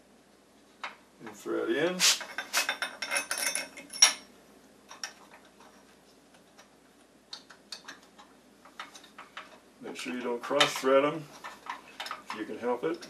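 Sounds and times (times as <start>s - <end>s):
metal bolts clicking: 7.3s - 13.0s.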